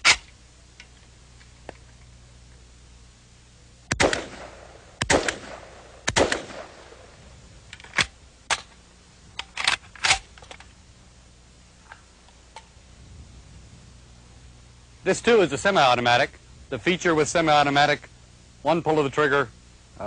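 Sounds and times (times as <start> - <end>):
rifle shots: 3.9 - 7.1.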